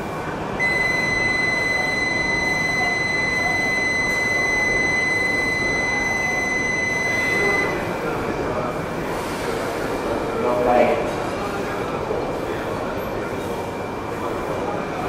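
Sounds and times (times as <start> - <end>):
station hubbub: 0.0 - 15.0
high electronic buzzer tone: 0.6 - 7.8.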